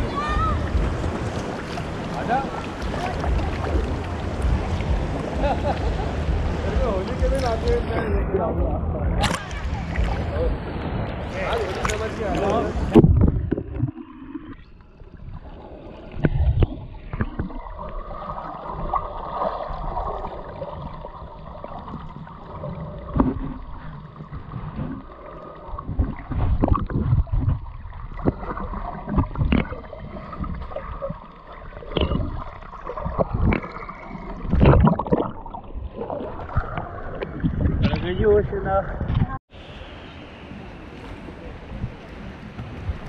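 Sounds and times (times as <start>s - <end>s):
muffled underwater sloshing: 0.0s - 43.0s
splashes and knocks: 21.8s - 25.1s, 25.8s - 38.1s.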